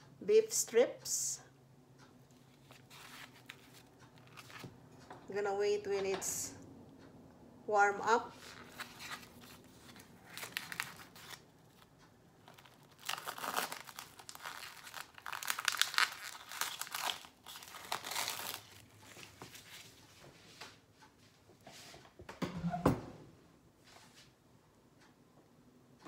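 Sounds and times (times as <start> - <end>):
plastic packaging crinkling: 2.5 - 4.7, 8.3 - 19.8.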